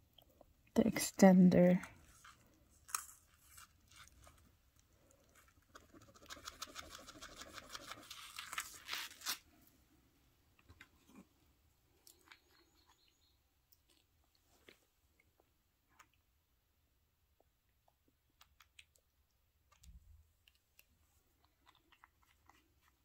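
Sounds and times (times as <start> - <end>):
rapid small clicks: 5.6 - 8.2.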